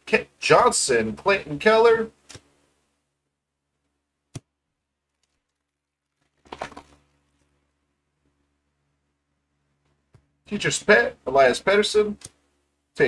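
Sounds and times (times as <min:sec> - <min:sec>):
foil wrapper tearing: 0:05.1 - 0:07.0.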